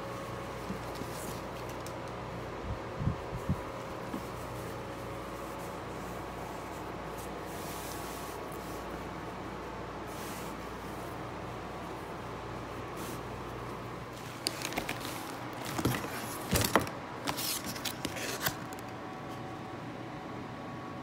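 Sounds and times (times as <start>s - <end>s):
steady background hum: 0.0s - 21.0s
items handled in cardboard box: 12.4s - 19.0s.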